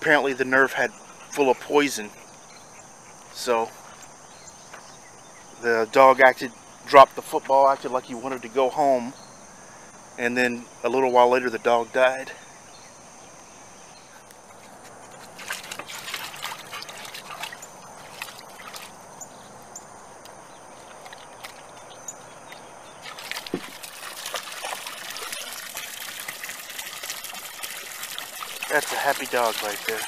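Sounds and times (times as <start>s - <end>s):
garden hose trickling: 14.2s - 19.8s, 20.8s - 30.0s
dog splashing in pool: 15.1s - 19.2s, 22.9s - 30.0s.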